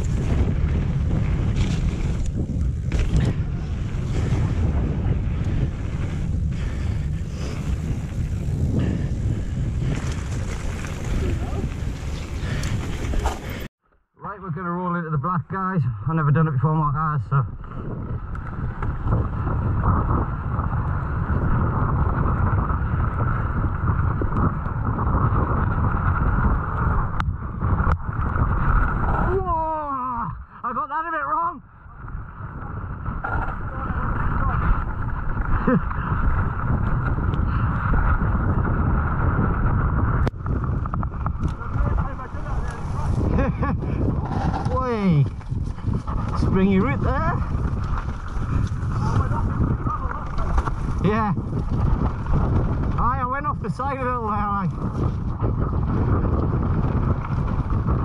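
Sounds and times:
bike knocks and rattles: 0.0 - 5.0
wind buffeting microphone: 0.0 - 13.7, 16.5 - 30.6, 31.5 - 58.0
bike tyre and frame noise: 0.0 - 13.8, 17.5 - 30.6, 31.3 - 58.0.

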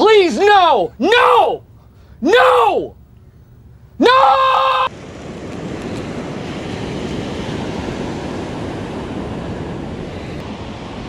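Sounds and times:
person shouting: 0.0 - 1.6, 2.2 - 3.0, 4.0 - 4.9
ocean surf washing up beach: 4.9 - 11.0
wind buffeting microphone: 4.9 - 11.0.

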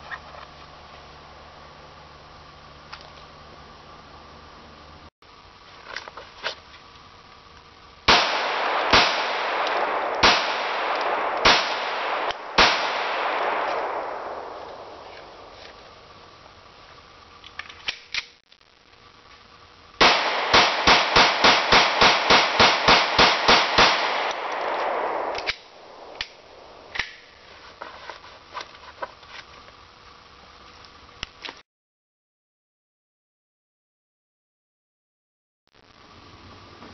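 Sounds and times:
pistol shots echoing: 8.1 - 15.4, 20.0 - 27.2.

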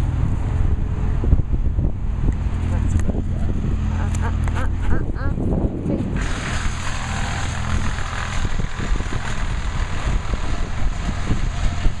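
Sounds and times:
chainsaws running: 5.9 - 12.0.

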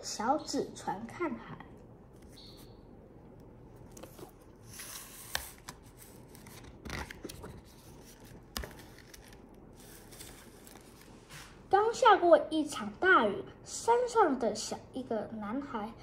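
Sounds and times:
book pages turning: 2.1 - 2.7, 3.7 - 11.6.

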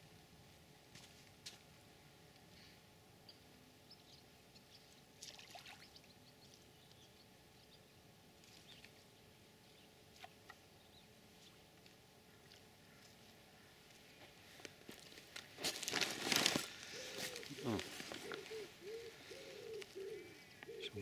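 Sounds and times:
faint outdoor hiss: 0.0 - 21.0
small water splashes: 5.2 - 6.1.

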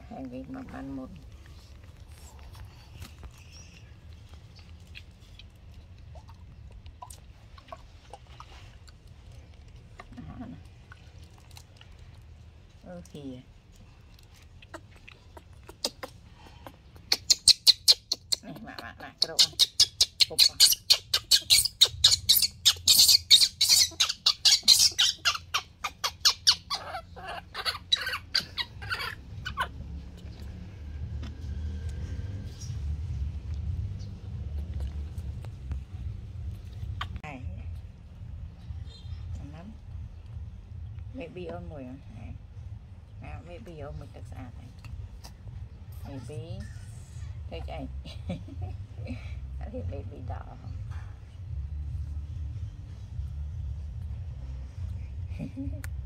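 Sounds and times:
low steady rumble: 0.0 - 17.1, 17.9 - 56.0
baby monkey squeaking: 14.6 - 30.0, 36.8 - 37.2.

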